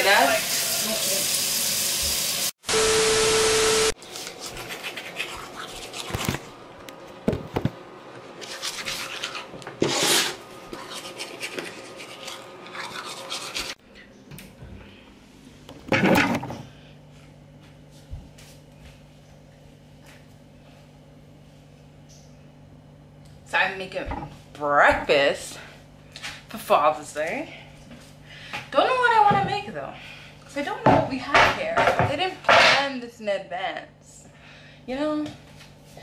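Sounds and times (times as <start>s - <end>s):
toothbrush scrubbing teeth: 4.1s - 6.4s, 8.4s - 9.5s, 10.7s - 13.8s.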